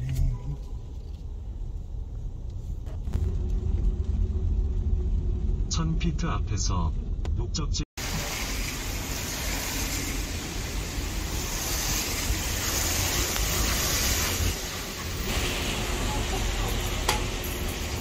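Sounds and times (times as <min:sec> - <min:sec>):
traffic on wet roads: 0:08.0 - 0:18.0.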